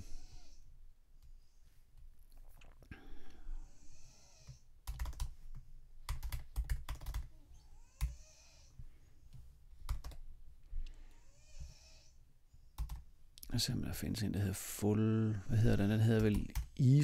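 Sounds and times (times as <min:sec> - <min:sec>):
keyboard typing: 0:04.8 - 0:07.3, 0:09.9 - 0:10.2, 0:12.8 - 0:13.0, 0:15.7 - 0:16.8.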